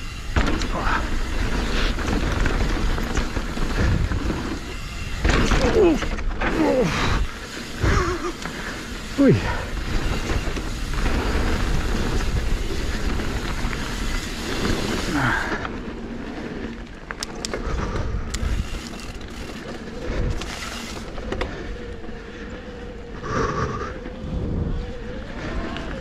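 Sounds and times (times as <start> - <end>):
bike rattling: 0.0 - 26.0
tyres rumbling on dirt: 0.0 - 26.0
wind on microphone: 23.1 - 26.0.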